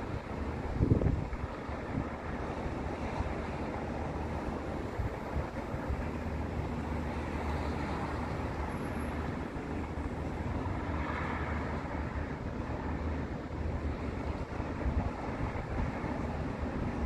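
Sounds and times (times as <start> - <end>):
cars passing on street: 0.0 - 17.0
wind rumbling on microphone: 0.0 - 17.0.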